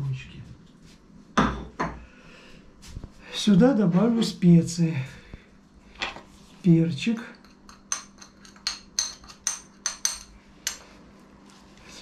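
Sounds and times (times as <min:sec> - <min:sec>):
metal spoon clinking on glass saucer: 0:07.4 - 0:10.8.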